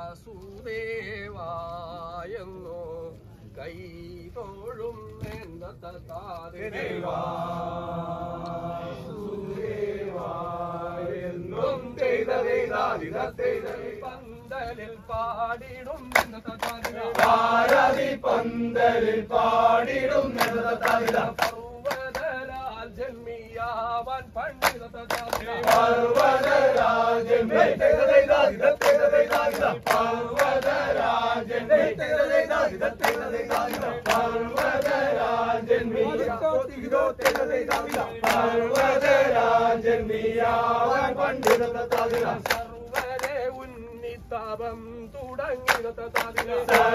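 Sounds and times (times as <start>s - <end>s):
men chanting together: 6.4s - 43.6s, 45.3s - 46.9s
sharp hand claps: 16.0s - 18.4s, 19.9s - 22.4s, 24.5s - 31.9s, 32.5s - 35.3s, 37.2s - 39.6s, 41.3s - 43.6s, 45.6s - 46.9s.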